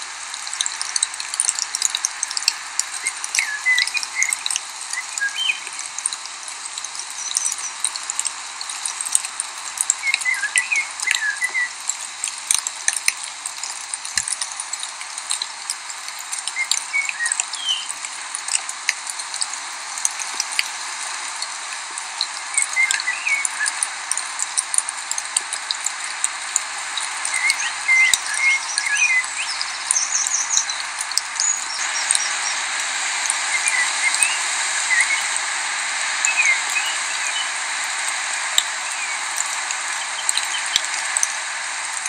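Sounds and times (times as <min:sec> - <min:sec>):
small stream running: 0:00.0 - 0:42.0
small bird chirping: 0:00.8 - 0:08.9, 0:27.3 - 0:32.7, 0:33.4 - 0:35.4.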